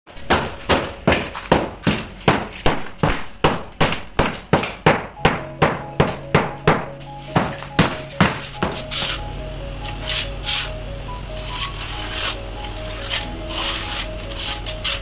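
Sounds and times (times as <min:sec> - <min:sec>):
hammer breaking floor tiles: 0:00.1 - 0:08.8
faint background music: 0:00.1 - 0:15.0.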